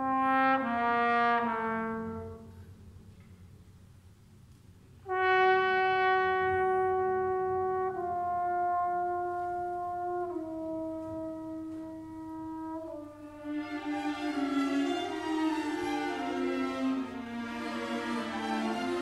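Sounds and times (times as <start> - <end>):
trombone long held notes: 0.0 - 2.6, 5.0 - 15.2.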